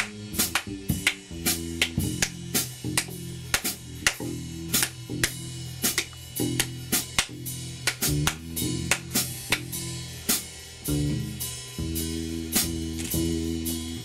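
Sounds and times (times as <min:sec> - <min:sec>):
plucked low strings: 0:00.0 - 0:10.0
drum kit: 0:00.0 - 0:14.0.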